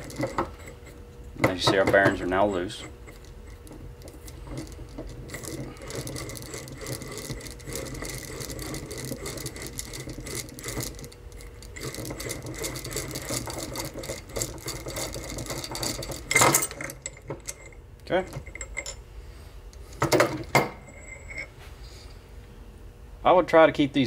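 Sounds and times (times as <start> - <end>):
nut rattling on threads: 0.0 - 19.0.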